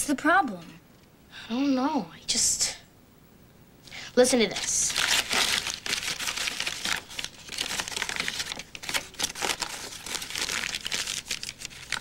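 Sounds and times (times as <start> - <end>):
paper crinkling: 4.5 - 12.0.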